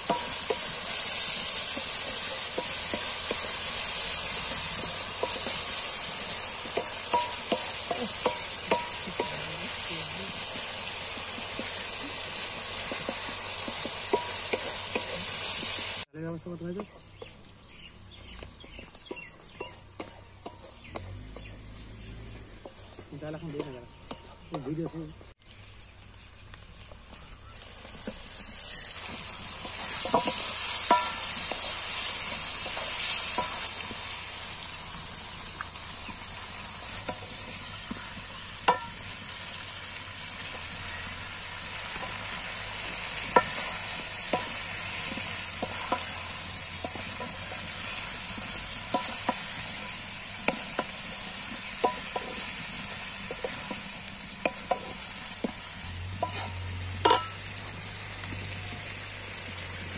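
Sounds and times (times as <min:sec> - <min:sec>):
spatula tapping pan: 0:00.0 - 0:09.8, 0:10.9 - 0:15.7, 0:18.4 - 0:21.5, 0:22.6 - 0:24.7, 0:29.0 - 0:34.0, 0:35.6 - 0:39.4, 0:41.8 - 0:55.6, 0:56.2 - 0:57.5
vegetables sizzling in hot oil: 0:00.0 - 0:59.9.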